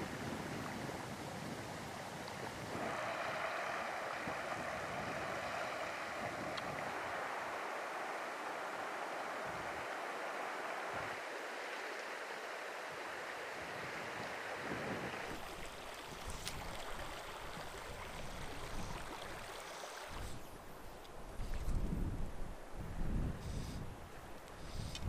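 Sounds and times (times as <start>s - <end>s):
wind rumble on microphone: 0.0s - 7.6s, 13.6s - 19.5s, 21.2s - 25.0s
creek water rushing over gravel: 0.0s - 21.0s.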